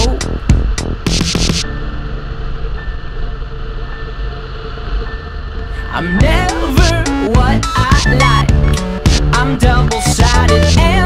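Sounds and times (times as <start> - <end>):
music beat: 0.0 - 1.8, 6.2 - 11.0
low drone: 0.0 - 11.0
wavering melody: 0.0 - 11.0.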